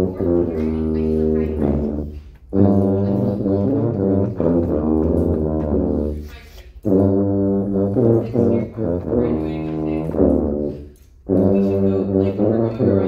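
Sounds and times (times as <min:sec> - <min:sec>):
sousaphones playing low notes: 0:00.0 - 0:06.2.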